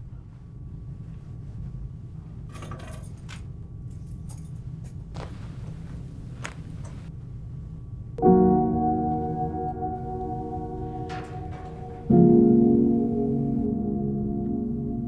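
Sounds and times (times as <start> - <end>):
low steady hum: 0.0 - 15.0
keys jingling: 2.5 - 5.1.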